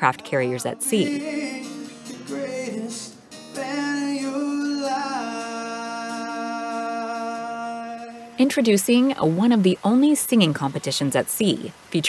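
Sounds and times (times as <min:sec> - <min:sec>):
man singing: 0:00.0 - 0:08.4
acoustic guitar: 0:00.0 - 0:11.7.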